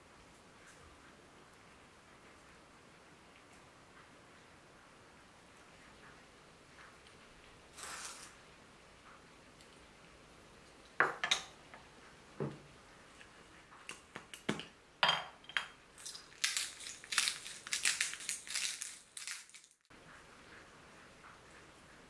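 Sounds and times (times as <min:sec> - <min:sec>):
pepper mill grinding: 0:07.8 - 0:08.4, 0:16.0 - 0:19.8.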